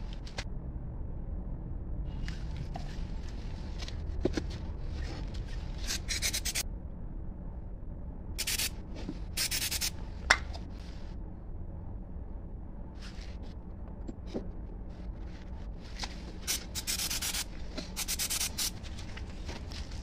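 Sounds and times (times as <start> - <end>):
spray bottle hissing sprays: 8.4 - 8.7, 9.4 - 9.9, 16.4 - 18.8.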